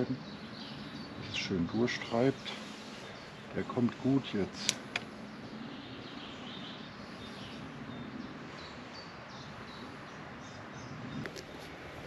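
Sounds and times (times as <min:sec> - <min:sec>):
bird chirps: 0:00.0 - 0:11.7
steady background hiss: 0:00.0 - 0:12.0.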